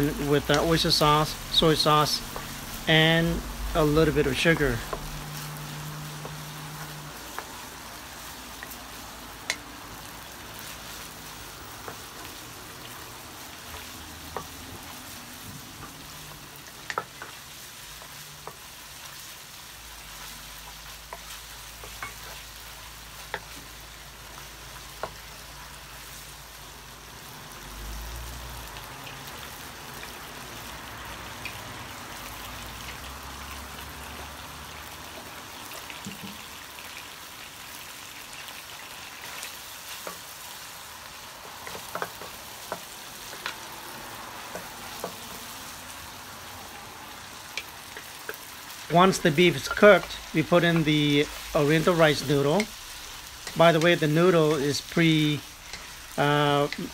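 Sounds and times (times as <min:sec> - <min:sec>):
meat sizzling in a wok: 0:00.0 - 0:56.9
wooden spatula knocking pan: 0:04.7 - 0:05.2, 0:51.8 - 0:52.8.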